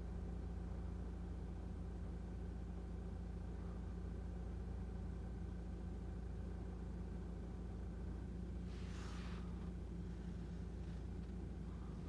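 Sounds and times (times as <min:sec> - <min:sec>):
car cabin hum: 0:01.8 - 0:12.0
short hiss: 0:08.6 - 0:09.7.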